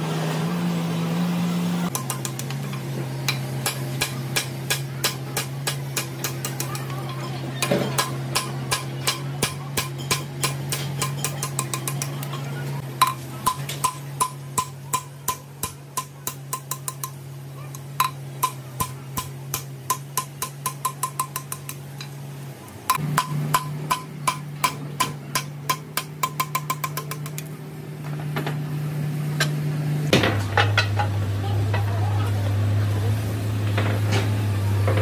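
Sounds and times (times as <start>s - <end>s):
sharp ringing taps: 8.0s - 12.3s, 13.0s - 17.2s, 18.0s - 21.8s, 22.9s - 27.4s.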